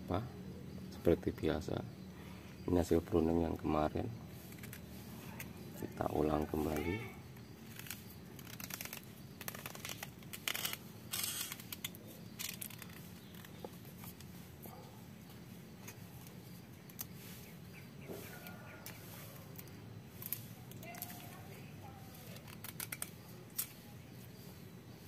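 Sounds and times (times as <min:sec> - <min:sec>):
knife scraping coconut husk: 0:04.3 - 0:14.9, 0:15.8 - 0:25.0.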